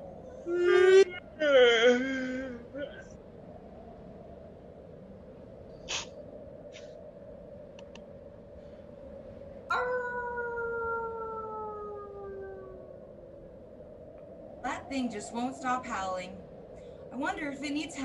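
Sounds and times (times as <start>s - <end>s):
faint steady hum: 0.0s - 18.0s
wolf howling: 9.7s - 13.3s.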